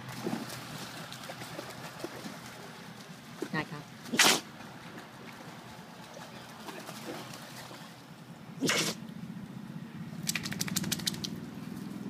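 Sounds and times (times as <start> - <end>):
rapid clicks: 10.2 - 11.3.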